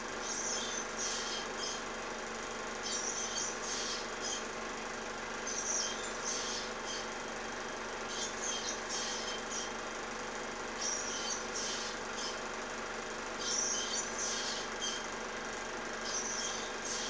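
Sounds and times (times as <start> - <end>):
bird nestlings chirping: 0.2 - 1.8, 2.8 - 4.5, 5.4 - 7.2, 8.0 - 9.7, 10.7 - 12.4, 13.4 - 15.1, 16.0 - 17.0.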